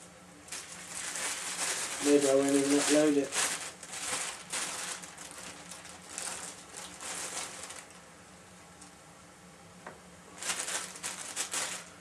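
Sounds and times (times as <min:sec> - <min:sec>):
faint steady hum: 0:00.0 - 0:12.0
rustling and scraping: 0:00.5 - 0:08.0, 0:10.4 - 0:12.0.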